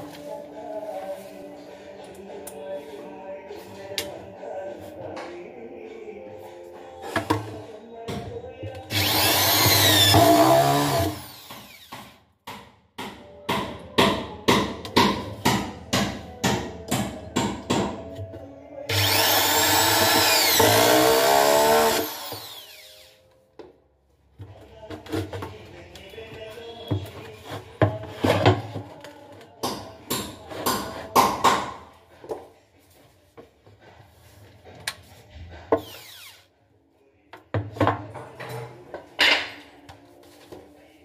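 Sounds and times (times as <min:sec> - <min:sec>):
cordless drill driving screws: 0:08.9 - 0:11.9, 0:18.9 - 0:23.1, 0:35.8 - 0:36.4.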